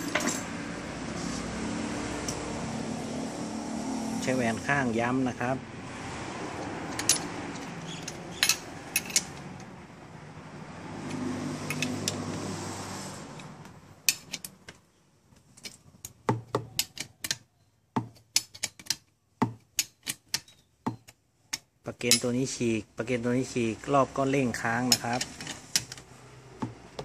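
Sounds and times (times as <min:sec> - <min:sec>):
wrench clinking on bolts: 0:00.0 - 0:00.5, 0:06.9 - 0:09.7, 0:14.0 - 0:17.5, 0:18.1 - 0:22.6, 0:24.5 - 0:26.1.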